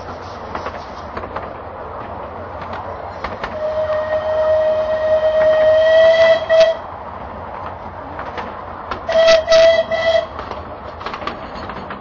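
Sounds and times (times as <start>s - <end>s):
train wheels clicking on track: 0.0s - 12.0s
steam locomotive whistle: 3.5s - 6.9s, 9.1s - 10.4s.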